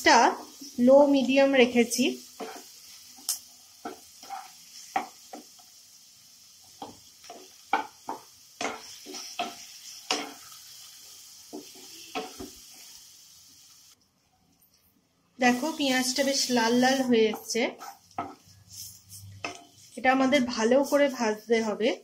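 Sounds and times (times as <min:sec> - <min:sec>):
vegetables sizzling in oil: 0:00.0 - 0:14.0, 0:15.4 - 0:22.0
wooden spatula scraping pan: 0:02.4 - 0:02.7, 0:03.8 - 0:05.2, 0:07.3 - 0:10.5, 0:15.5 - 0:20.0.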